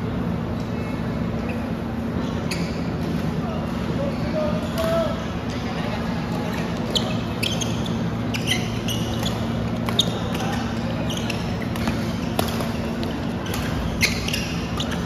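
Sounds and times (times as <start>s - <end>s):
low hum in echoing hall: 0.0s - 15.0s
shoes squeaking on court: 0.6s - 15.0s
racket hitting shuttlecock: 11.7s - 13.9s.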